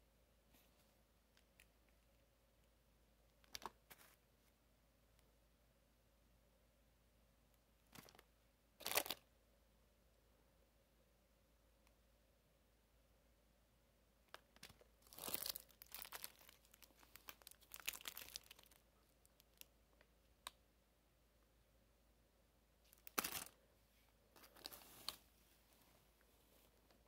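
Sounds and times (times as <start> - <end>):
plastic wrappers crinkling: 8.0 - 9.2, 14.3 - 19.7, 22.9 - 23.6, 24.4 - 25.2.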